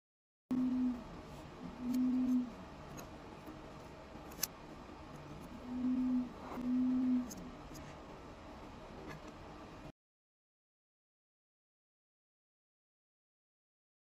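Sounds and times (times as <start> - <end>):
low steady hum: 0.5 - 9.9.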